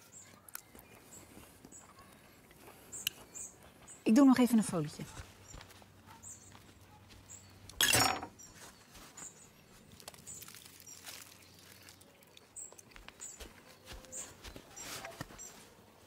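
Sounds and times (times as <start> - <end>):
foil crinkling: 9.8 - 12.5
aluminium foil ripping: 9.9 - 12.4.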